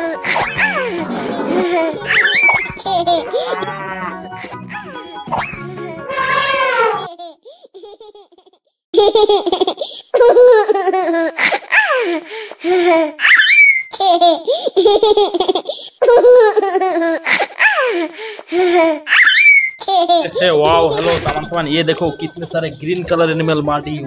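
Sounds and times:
child squealing: 5.3 - 7.1, 13.2 - 13.9, 19.0 - 19.8.

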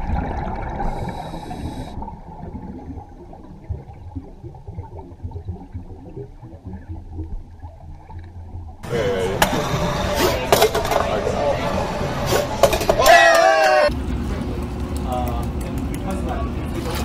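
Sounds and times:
gurgling bubbles underwater: 0.0 - 8.8
low muffled underwater rumble: 0.0 - 9.7.

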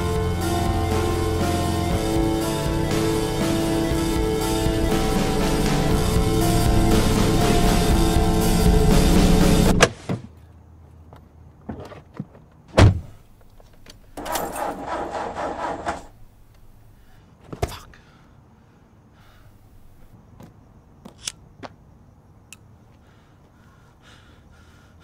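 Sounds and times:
background music: 0.0 - 9.8
heavy thump: 12.8 - 13.2.

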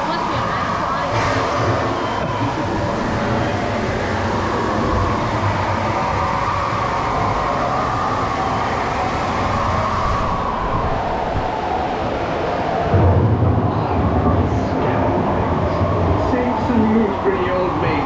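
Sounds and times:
boat rushing through water: 0.0 - 18.0.

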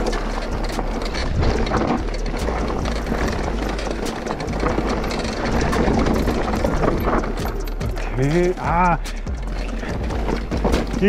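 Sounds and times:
wind rumble on microphone: 0.0 - 8.0
bike rattling knocks: 0.0 - 11.0
tyres rolling over gravel: 0.0 - 11.0.

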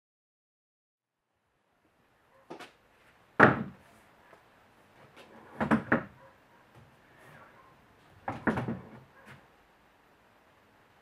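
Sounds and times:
swivel stool clunking: 8.2 - 9.1.

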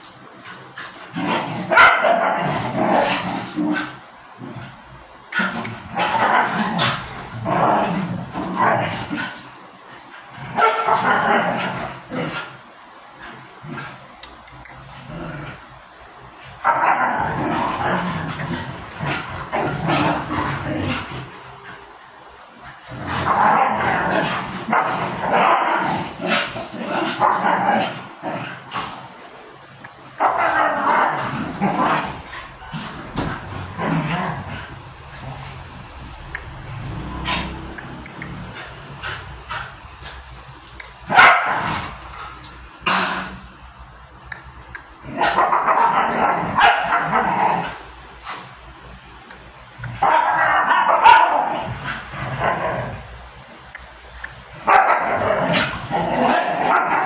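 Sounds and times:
dogs play-fighting vocalizations: 0.0 - 14.2, 16.5 - 29.2, 30.2 - 35.7, 36.9 - 43.5, 54.3 - 57.0
dogs barking: 1.7 - 3.2, 10.5 - 11.6, 41.1 - 41.8, 45.1 - 47.6, 50.0 - 52.8, 54.6 - 57.0
dogs vocalizing while playing: 37.1 - 43.5.

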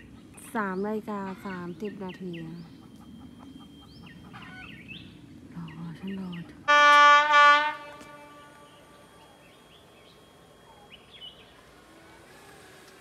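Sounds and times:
faint bird chirps: 0.0 - 6.6, 7.8 - 11.9
locomotive air horn blasts: 6.7 - 9.5.

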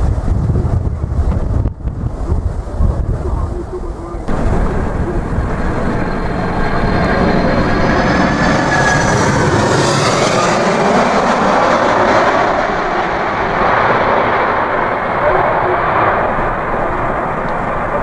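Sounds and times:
jet engines roaring overhead: 0.0 - 18.0
high jet whine: 4.2 - 18.0.

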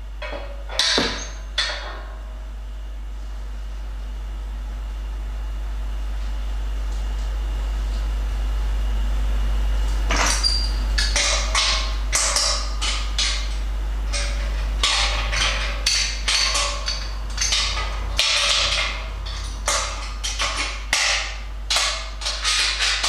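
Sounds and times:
steady low hum: 0.0 - 23.0
metal fittings scraping and clinking: 10.1 - 20.9, 21.7 - 23.0.

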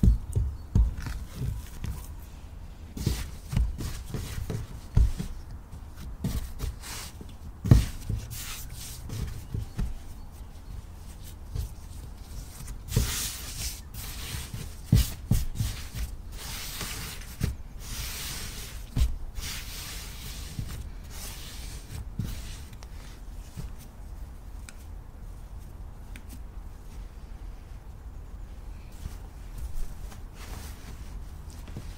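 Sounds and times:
soft dough thumps: 0.0 - 2.2, 2.9 - 13.4.

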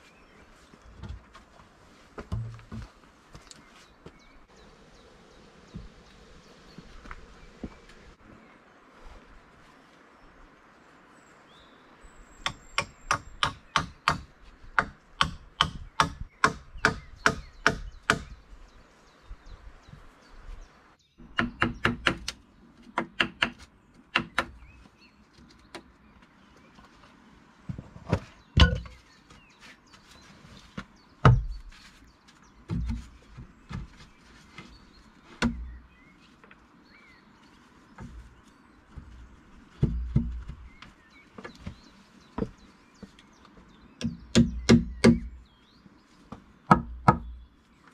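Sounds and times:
hatchet striking wood: 12.4 - 18.4, 21.2 - 22.4, 23.0 - 24.6, 44.0 - 45.3, 46.7 - 47.3.

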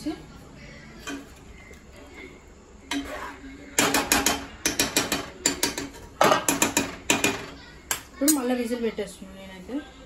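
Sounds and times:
metal spoon clinking in pot: 3.8 - 8.5.

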